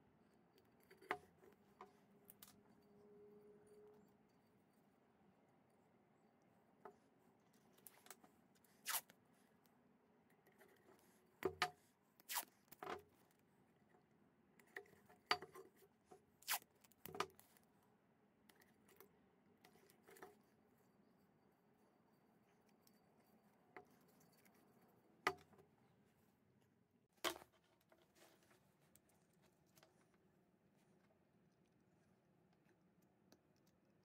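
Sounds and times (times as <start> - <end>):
masking tape ripping: 8.8 - 9.1, 12.3 - 12.5, 16.4 - 16.6.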